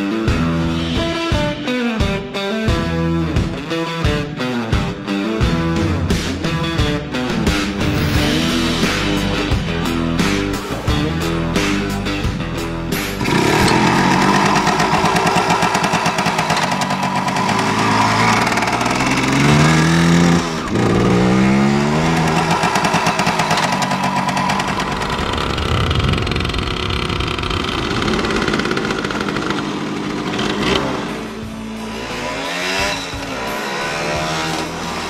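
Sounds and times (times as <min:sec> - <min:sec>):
two-stroke motorcycle engine revving: 0:12.9 - 0:35.0.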